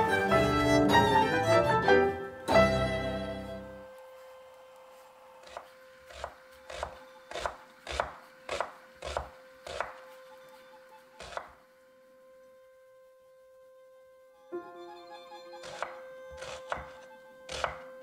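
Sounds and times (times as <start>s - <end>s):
violin and piano chord: 0.0s - 4.5s, 11.9s - 18.0s
knife chopping on wooden board: 5.4s - 10.0s, 11.2s - 11.6s, 15.6s - 17.9s.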